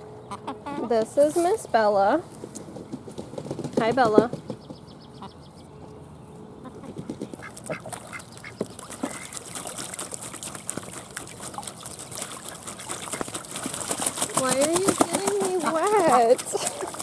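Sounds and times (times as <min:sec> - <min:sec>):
ducks quacking: 0:00.2 - 0:01.1, 0:06.6 - 0:17.0
ducks splashing water: 0:06.6 - 0:17.0.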